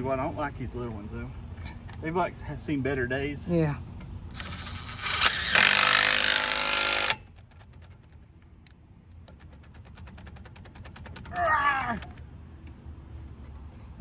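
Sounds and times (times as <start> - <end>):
impact wrench hammering: 5.2 - 8.2.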